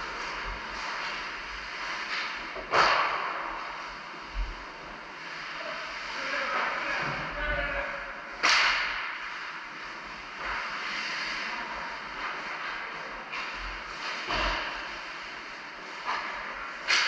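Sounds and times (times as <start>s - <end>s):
noisy rink ambience: 0.0s - 17.0s
loud sharp hockey hit: 8.4s - 9.3s.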